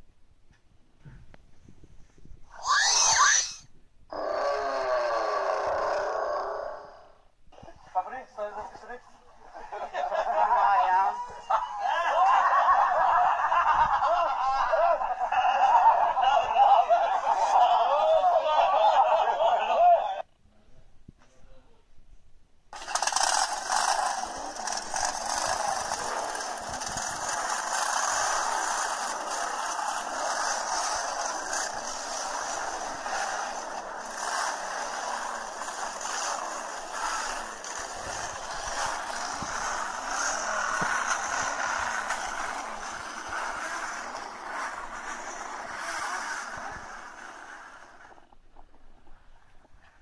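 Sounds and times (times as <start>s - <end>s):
motorcycle engines through small speaker: 22.7s - 48.3s.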